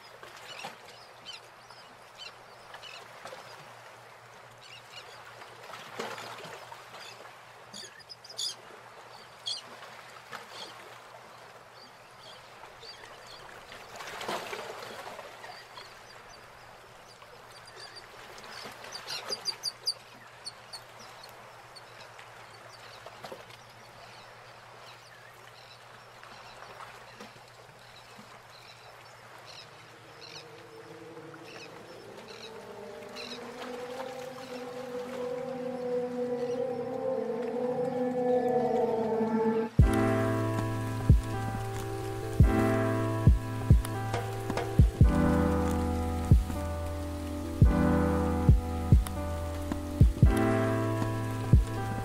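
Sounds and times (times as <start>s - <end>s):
birds chirping: 28.7s - 52.0s.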